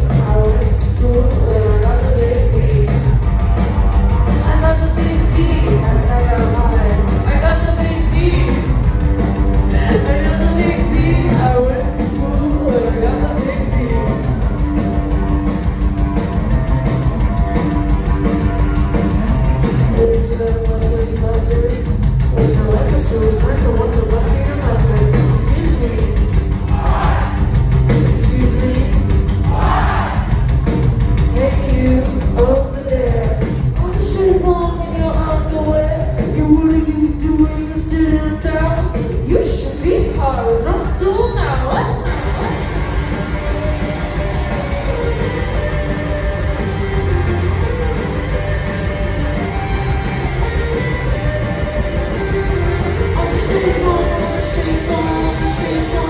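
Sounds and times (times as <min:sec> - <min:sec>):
live rock band playing: 0:00.0 - 0:56.0
woman singing: 0:00.1 - 0:03.1, 0:04.4 - 0:08.6, 0:09.7 - 0:14.1
person singing: 0:52.7 - 0:56.0.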